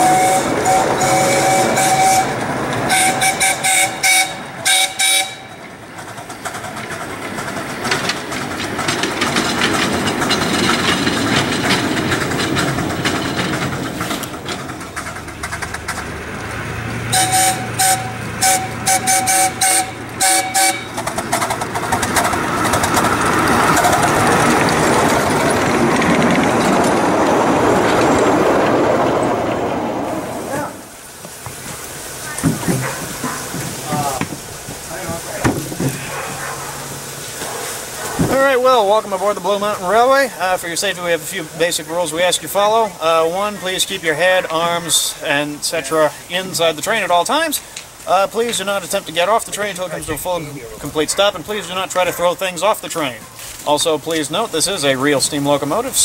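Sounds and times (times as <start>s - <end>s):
steam whistle toots: 0.0s - 5.6s, 17.1s - 21.0s
steam locomotive running: 0.0s - 56.0s.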